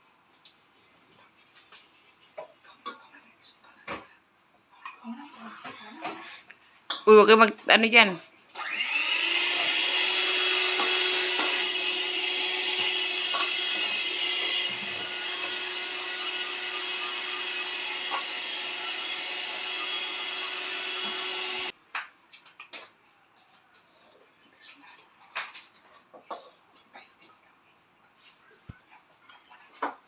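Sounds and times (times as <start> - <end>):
electric hand mixer whisking batter: 8.6 - 21.7.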